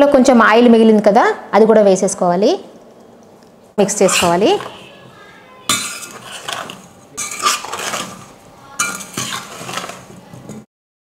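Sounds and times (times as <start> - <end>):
spoon scraping a steel bowl: 3.9 - 10.2.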